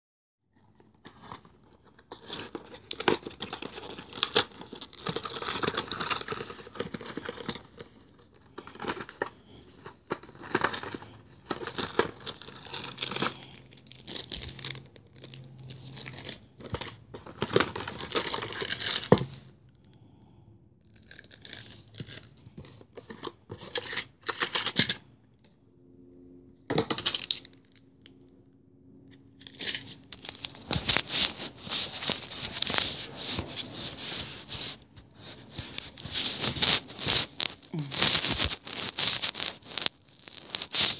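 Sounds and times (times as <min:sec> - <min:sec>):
plastic packaging crinkling: 0:02.1 - 0:19.3, 0:29.4 - 0:40.9
cardboard box being opened: 0:29.5 - 0:40.9.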